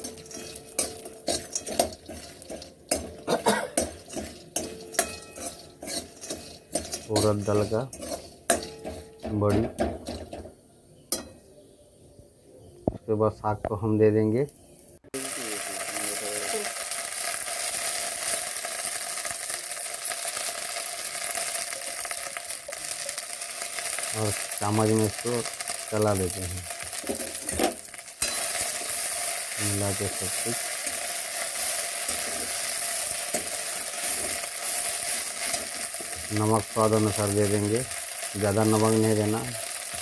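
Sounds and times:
food frying in oil: 0.0 - 9.3, 15.1 - 40.0
metal spoon scraping a pan: 0.0 - 10.4, 21.2 - 40.0
faint small crackles: 15.4 - 40.0.

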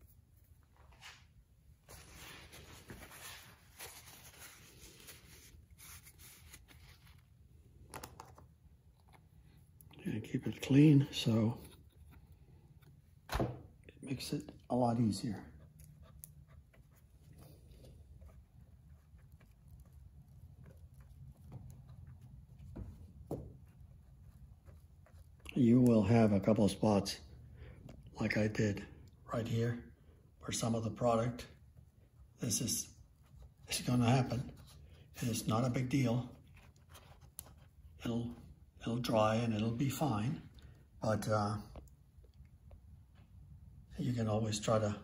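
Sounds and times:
paper towel rustling: 0.3 - 7.5
hands rustling and tapping rubber seal: 17.0 - 25.9.

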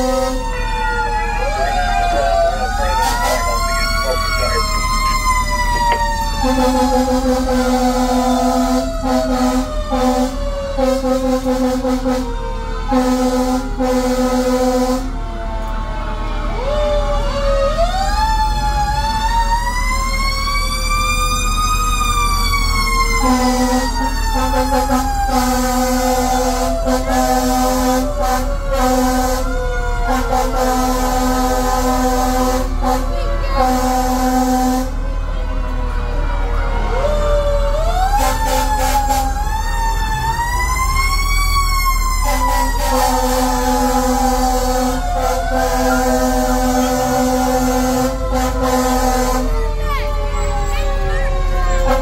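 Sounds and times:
air horn blasts: 0.0 - 0.6, 5.8 - 15.2, 23.2 - 35.0, 38.1 - 39.4, 42.2 - 49.6, 51.8 - 52.0
fire truck siren winding: 0.0 - 52.0
second siren falling in pitch: 0.0 - 52.0
truck engine drone: 0.0 - 52.0.

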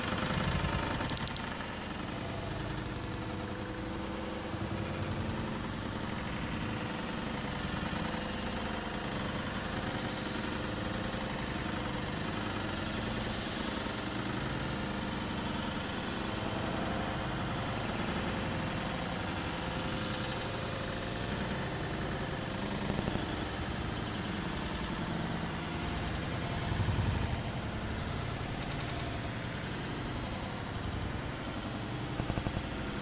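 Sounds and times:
traffic engines droning: 0.0 - 33.0
clicks: 1.0 - 1.5.

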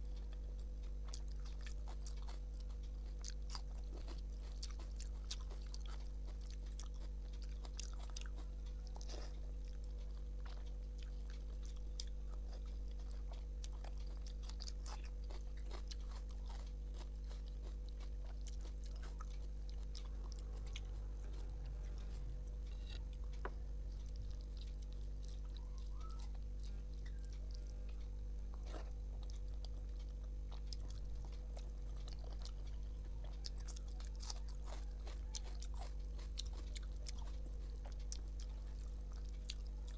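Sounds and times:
person chewing: 0.0 - 39.9
steady low hum: 0.0 - 39.9.

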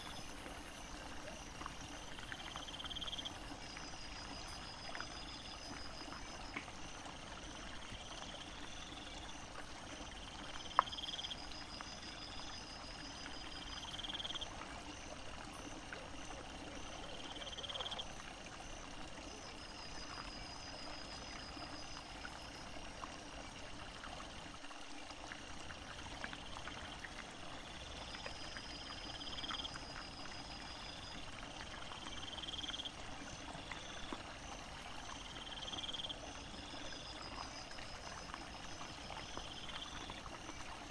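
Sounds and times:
faint ticks: 0.0 - 6.9, 8.1 - 12.4, 25.6 - 40.9
insects trilling: 0.0 - 24.6, 25.4 - 40.9.

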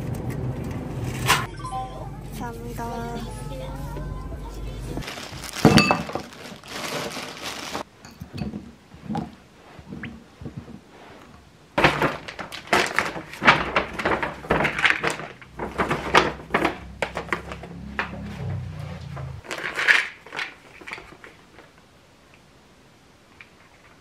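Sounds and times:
paper and plastic rustling: 5.0 - 7.9, 11.8 - 17.8, 19.4 - 21.8
items set down on table: 5.6 - 6.3.

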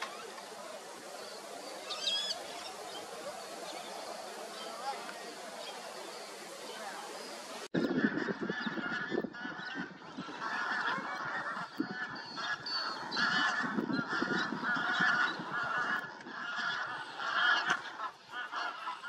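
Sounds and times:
flock of waterfowl calling: 0.0 - 19.0.

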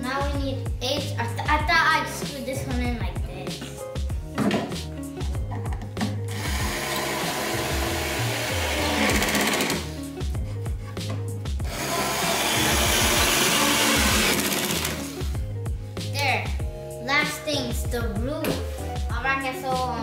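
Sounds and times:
cordless drill driving screws: 6.3 - 9.9, 11.7 - 15.2.

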